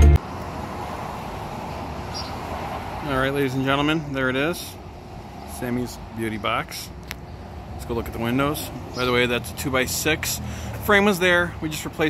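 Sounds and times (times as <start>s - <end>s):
rock music with guitar: 0.0s - 0.2s
road traffic hum: 0.0s - 12.0s.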